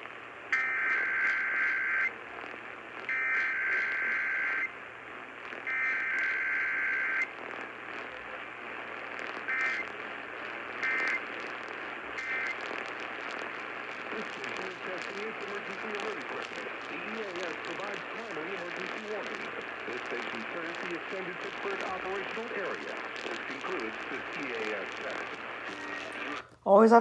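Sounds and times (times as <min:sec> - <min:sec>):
static hiss: 0:00.0 - 0:26.6
data tone bursts: 0:03.1 - 0:04.8, 0:05.6 - 0:07.3, 0:09.4 - 0:10.0, 0:10.6 - 0:11.5, 0:12.1 - 0:26.4.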